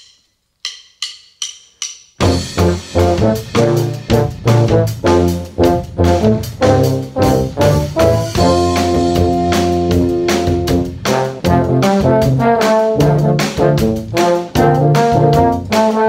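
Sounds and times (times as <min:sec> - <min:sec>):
drumsticks clicking together: 0:00.0 - 0:02.2
drum kit: 0:00.0 - 0:16.0
brass band playing: 0:02.2 - 0:16.0.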